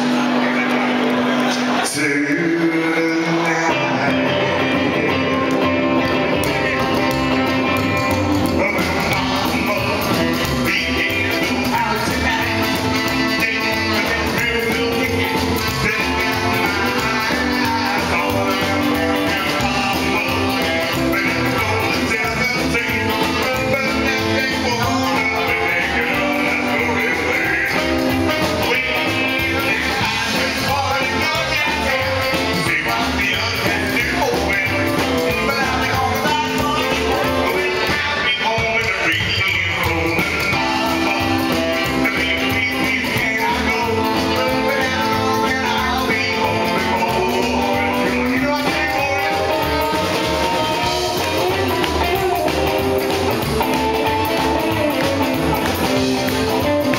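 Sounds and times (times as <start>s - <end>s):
electric guitar: 0.0s - 56.9s
man singing: 0.0s - 56.9s
upright double bass: 0.0s - 56.9s
saxophone: 3.2s - 56.9s
steady beat: 5.1s - 56.9s.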